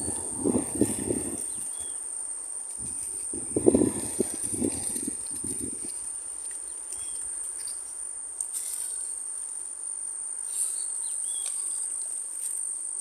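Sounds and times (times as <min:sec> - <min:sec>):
insects buzzing: 0:00.0 - 0:13.0.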